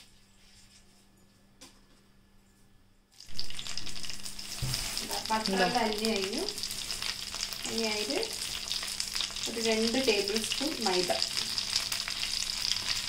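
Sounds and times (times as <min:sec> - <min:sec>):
butter sizzling in frying pan: 0:03.2 - 0:13.0.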